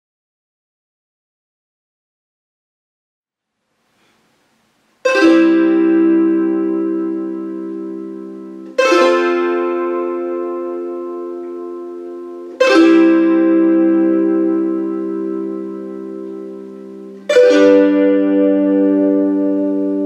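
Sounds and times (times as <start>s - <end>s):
zither strummed chords: 5.0s - 20.0s.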